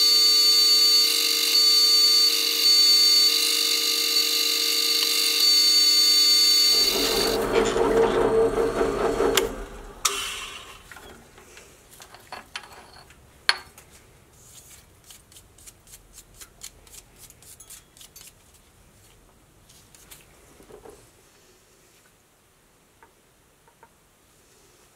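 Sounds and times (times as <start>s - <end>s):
drill press whining: 0.0s - 11.2s
rough rumble of drill winding down: 6.3s - 10.8s.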